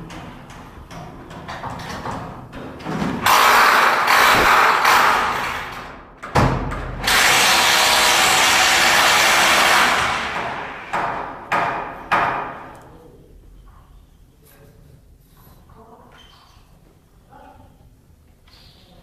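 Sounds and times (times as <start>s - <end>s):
power tool running: 3.3s - 5.4s, 7.0s - 11.0s.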